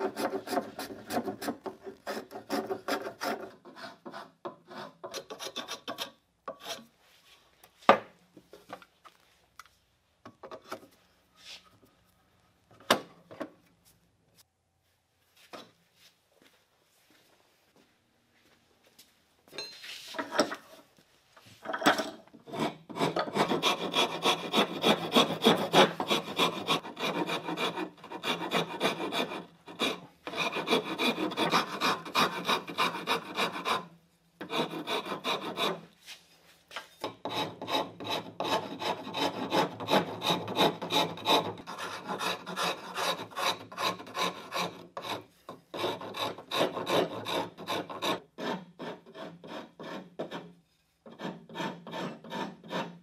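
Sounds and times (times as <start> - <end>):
rasp filing wood: 0.0 - 6.8, 22.4 - 35.9, 37.1 - 53.0.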